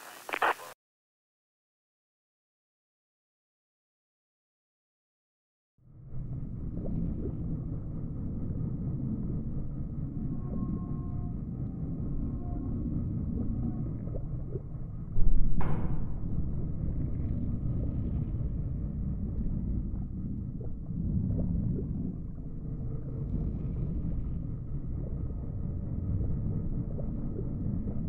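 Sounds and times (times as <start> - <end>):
deep underwater rumble: 5.8 - 28.0
loud underwater hit: 13.3 - 22.4.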